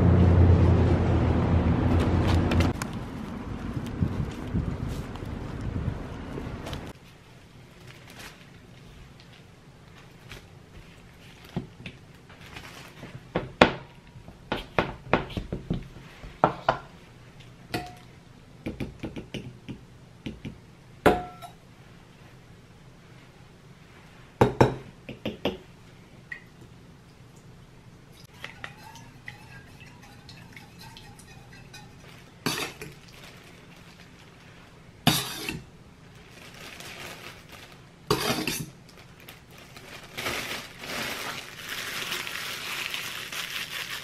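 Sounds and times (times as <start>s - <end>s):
utensils clinking against metal bowl: 28.3s - 33.0s.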